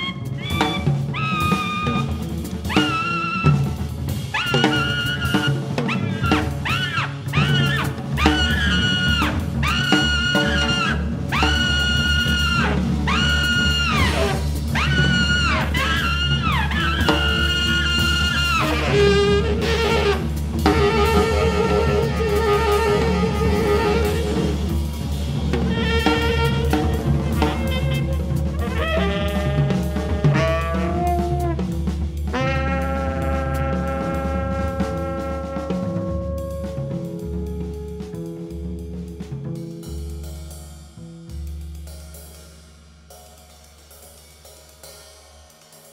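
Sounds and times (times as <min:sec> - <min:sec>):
bass: 0:00.0 - 0:45.9
drum kit: 0:00.0 - 0:45.9
tenor saxophone: 0:12.8 - 0:24.8, 0:25.6 - 0:39.2.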